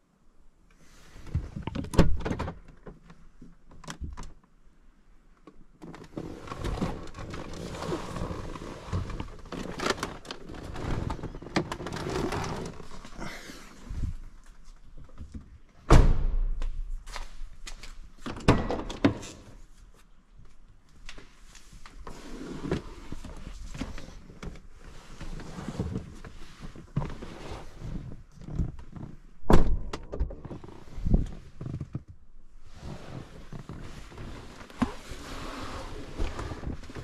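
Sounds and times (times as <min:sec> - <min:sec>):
rustling and knocks in car seat: 0:22.7 - 0:32.2, 0:32.8 - 0:37.0.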